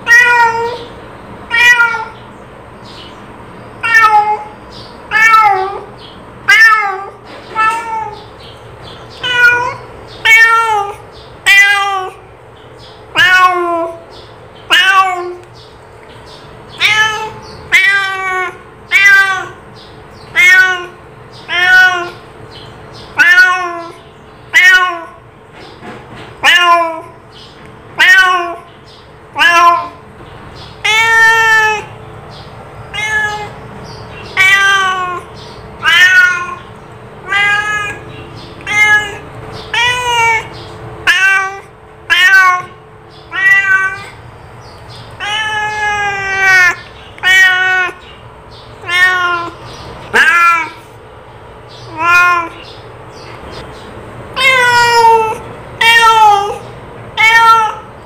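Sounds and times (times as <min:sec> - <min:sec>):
cat meowing: 0:00.0 - 0:00.9, 0:01.5 - 0:02.3, 0:03.8 - 0:08.3, 0:09.1 - 0:12.3, 0:13.1 - 0:15.5, 0:16.7 - 0:22.3, 0:23.0 - 0:25.2, 0:26.4 - 0:27.2, 0:27.9 - 0:28.7, 0:29.3 - 0:30.0, 0:30.6 - 0:31.9, 0:32.8 - 0:44.2, 0:44.9 - 0:48.2, 0:48.8 - 0:51.0, 0:51.7 - 0:52.8, 0:54.3 - 0:58.0.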